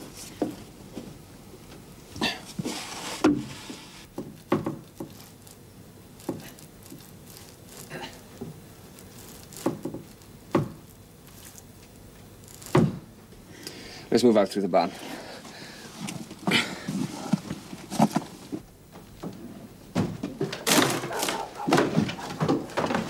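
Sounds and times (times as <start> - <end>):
wooden trapdoor knocks and thumps: 19.9 - 23.0.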